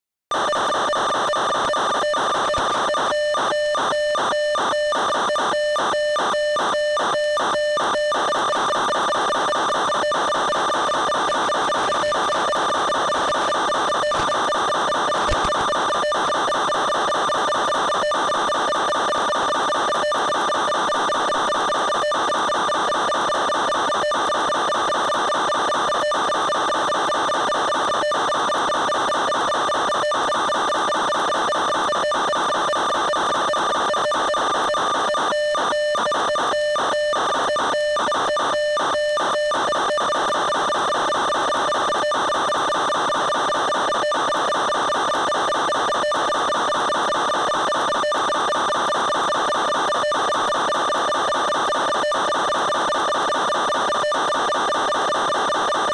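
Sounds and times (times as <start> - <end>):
click: 15.3 - 15.5.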